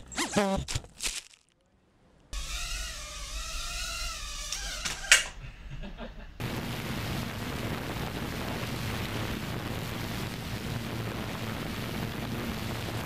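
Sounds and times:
drone motors whirring: 0:02.4 - 0:05.2
low hum: 0:05.4 - 0:13.0.

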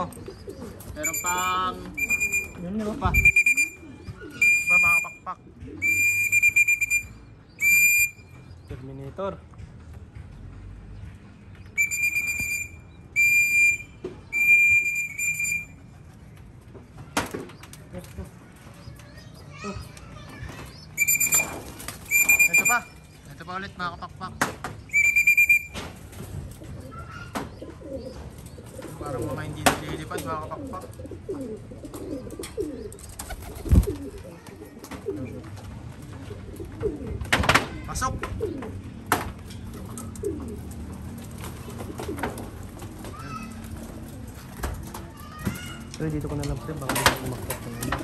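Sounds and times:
pigeons cooing: 0:00.0 - 0:06.6, 0:26.4 - 0:39.0, 0:39.7 - 0:44.6
high whistle blasts: 0:01.1 - 0:02.6, 0:05.8 - 0:08.2, 0:11.8 - 0:15.7, 0:21.0 - 0:21.5, 0:22.1 - 0:22.8, 0:24.9 - 0:25.8.

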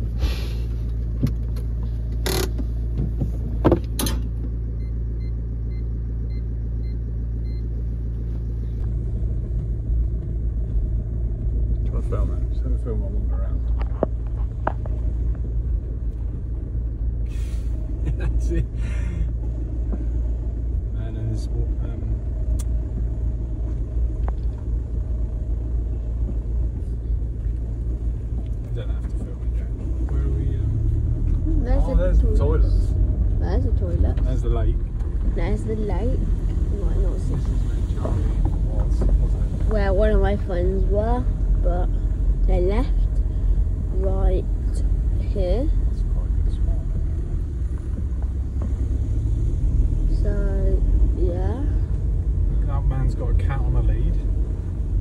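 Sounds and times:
low rumble inside van: 0:00.0 - 0:55.0
short knocks and rustles: 0:01.0 - 0:04.6.

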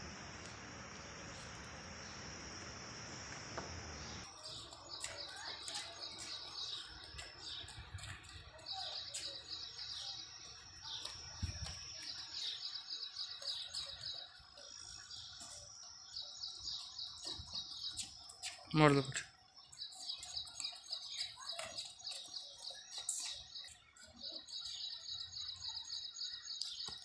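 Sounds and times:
insect drone: 0:00.0 - 0:04.5
small birds chirping: 0:00.0 - 0:27.0.

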